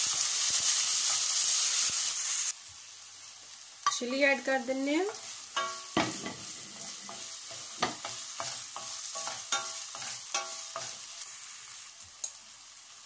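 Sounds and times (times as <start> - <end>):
vegetables sizzling in hot oil: 0.0 - 13.0
wooden spoon scraping a pan: 5.0 - 11.8.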